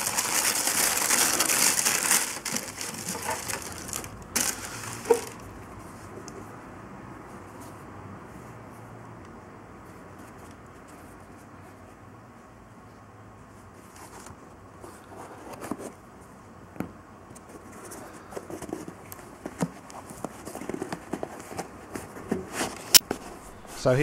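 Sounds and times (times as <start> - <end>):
paper packing crinkling: 0.0 - 5.5
faint steady hiss: 22.9 - 24.0.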